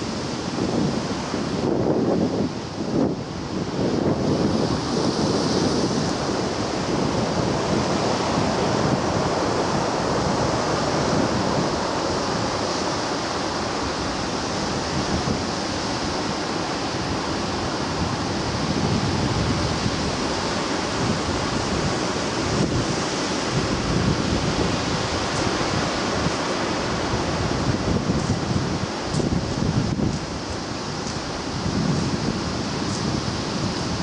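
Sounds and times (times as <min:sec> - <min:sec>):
sea waves breaking: 0:00.0 - 0:34.0.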